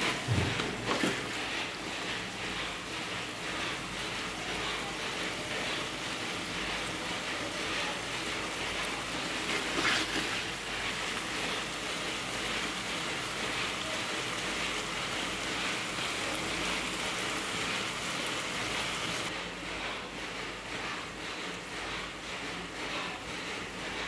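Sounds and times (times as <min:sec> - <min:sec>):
vegetables sizzling in oil: 0:05.5 - 0:19.3.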